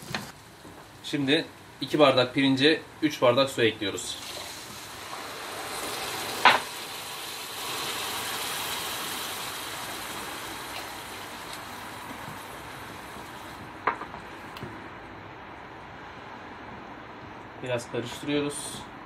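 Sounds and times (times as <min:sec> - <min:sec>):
water sizzling in hot pan: 0:04.2 - 0:13.7.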